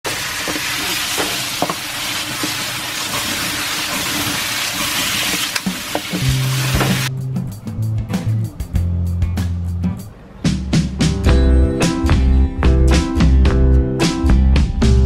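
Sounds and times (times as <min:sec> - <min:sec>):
meat sizzling in a pan: 0:00.1 - 0:07.1.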